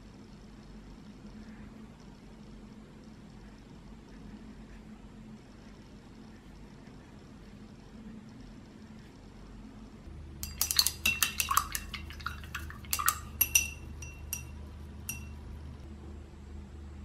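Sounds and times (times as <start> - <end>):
paintbrush swishing in water: 10.4 - 14.5
brush clinking against glass: 10.4 - 15.4.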